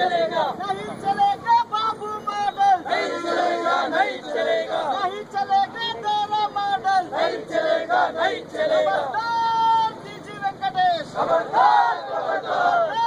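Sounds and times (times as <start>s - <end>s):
protesters chanting: 0.0s - 1.5s, 2.4s - 13.0s.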